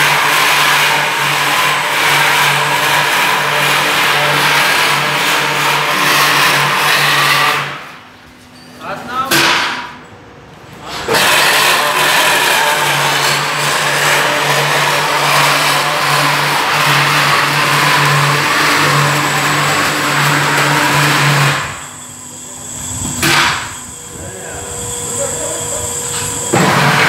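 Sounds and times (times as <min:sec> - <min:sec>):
electric motor hum: 0:11.1 - 0:27.0.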